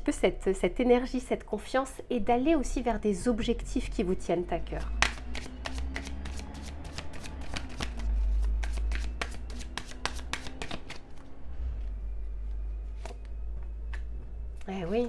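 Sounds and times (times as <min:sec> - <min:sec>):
steady low hum: 0:00.0 - 0:15.0
cards being shuffled: 0:05.0 - 0:11.2.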